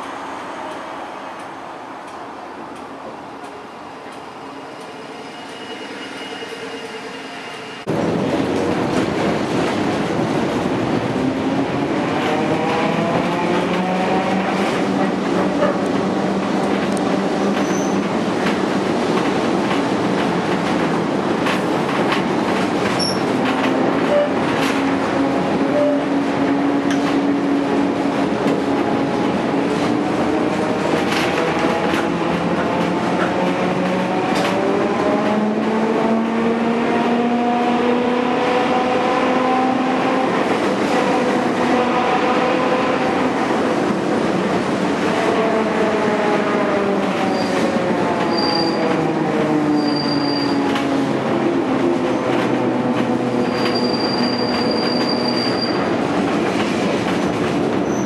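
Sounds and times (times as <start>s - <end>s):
wheels rumbling on rail: 0.0s - 58.0s
wheels squealing on rails: 4.2s - 7.9s, 17.6s - 18.2s, 22.9s - 23.4s, 24.0s - 24.8s, 25.6s - 26.2s, 47.2s - 49.0s, 49.7s - 50.8s, 53.4s - 56.0s, 57.8s - 58.0s.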